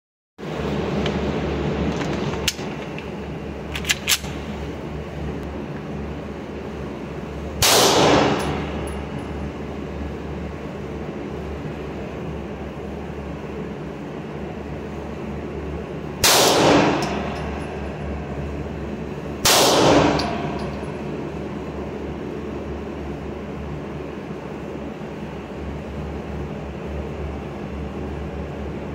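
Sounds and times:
steady low hum: 0.4 - 28.9
pistol shots: 7.6 - 8.7, 16.2 - 17.2, 19.4 - 20.5.

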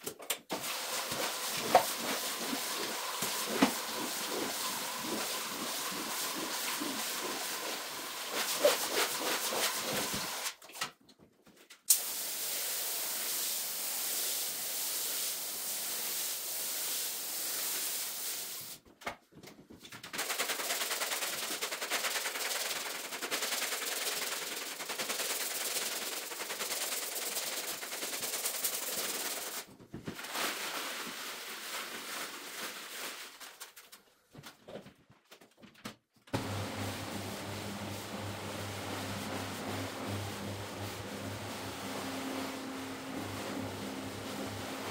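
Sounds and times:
fast rattling and scraping: 1.5 - 10.5, 19.8 - 33.9.

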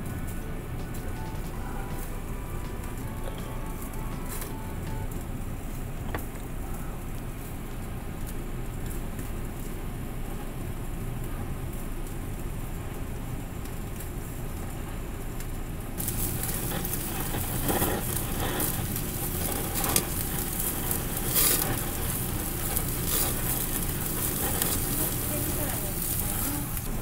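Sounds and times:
meat sizzling on a grill: 0.0 - 27.0
sharp crackling pops: 15.3 - 27.0.

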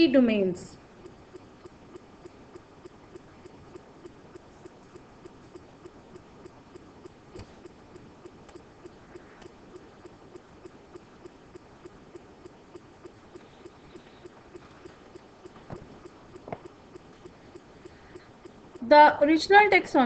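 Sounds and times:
faint steady ticking: 0.0 - 20.0
low background hiss: 0.0 - 20.0.

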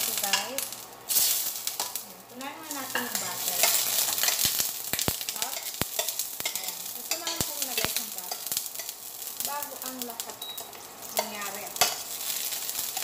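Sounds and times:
butter sizzling in a frying pan: 0.0 - 13.0
metal spatula clicking against pan: 2.9 - 8.9, 11.2 - 12.1.

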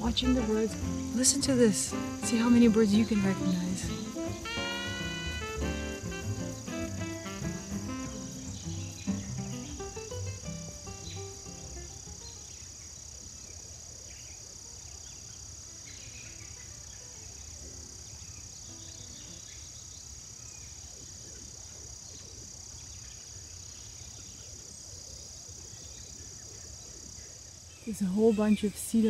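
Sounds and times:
insect trill: 0.0 - 29.0
bird calls and chirps: 6.8 - 29.0.

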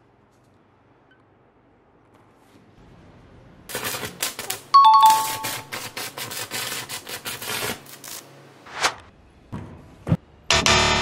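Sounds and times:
two-note ding-dong chime: 4.8 - 5.7.

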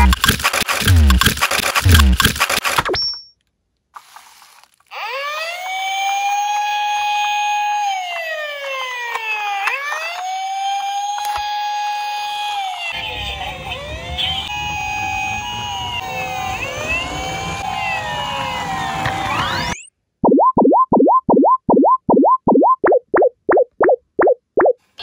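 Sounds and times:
toy police siren wailing: 4.9 - 19.8.

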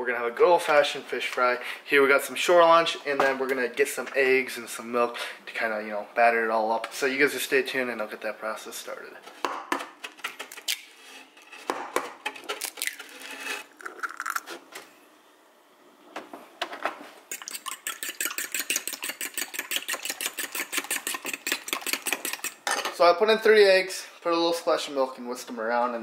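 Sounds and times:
eggs cracking on bowl: 13.8 - 14.5, 17.3 - 22.7
whisk clicking against bowl: 17.3 - 22.6.

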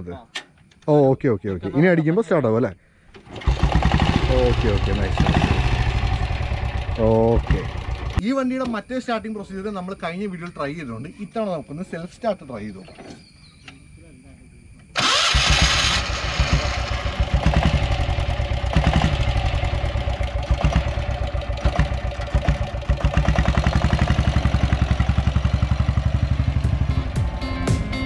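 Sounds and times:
motorcycle engine starting: 3.1 - 8.2, 15.0 - 28.0
motorcycle engine chugging: 3.2 - 8.2, 15.0 - 28.0.

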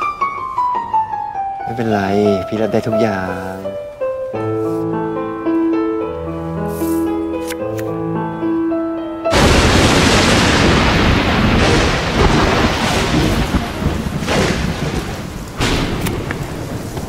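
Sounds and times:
heavy rain: 9.3 - 17.0
thunder cracks: 9.3 - 17.0
thunder rumbling: 9.3 - 17.0.

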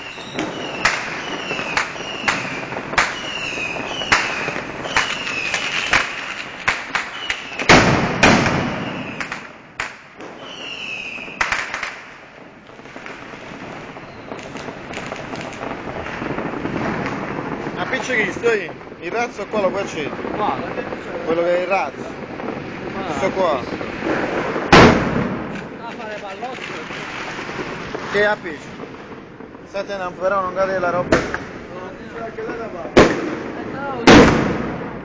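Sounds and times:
firecrackers banging: 0.0 - 35.0
fireworks whistling: 0.0 - 35.0.

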